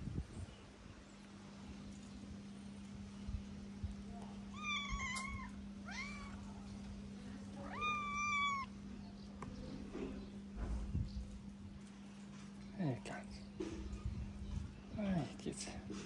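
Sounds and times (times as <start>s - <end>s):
cat meowing: 4.5s - 6.5s, 7.6s - 8.7s.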